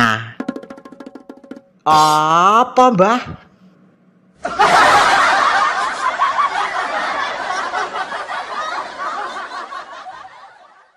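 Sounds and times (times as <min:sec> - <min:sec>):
audience laughter: 0:04.4 - 0:10.9.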